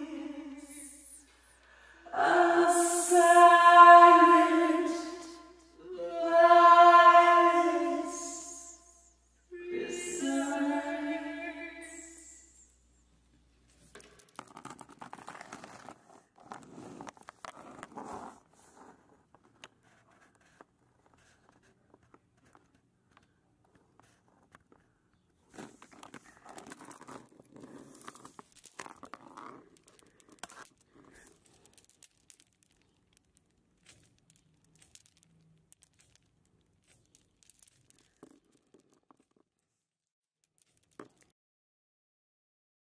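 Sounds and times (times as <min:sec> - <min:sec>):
metal chains jangling: 0:11.8 - 0:13.0, 0:13.7 - 0:16.7, 0:25.9 - 0:41.3.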